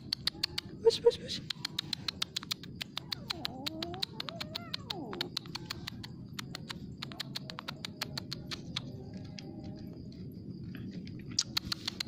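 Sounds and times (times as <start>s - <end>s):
rapid crisp clicking: 1.4s - 9.4s, 11.3s - 12.0s
cat meowing: 3.1s - 5.4s.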